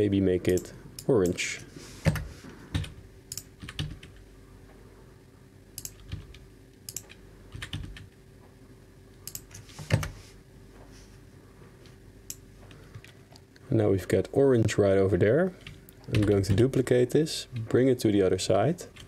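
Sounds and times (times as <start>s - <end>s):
faint steady hum: 0.0s - 19.0s
keyboard typing: 2.0s - 4.2s, 5.8s - 8.2s, 15.6s - 16.7s.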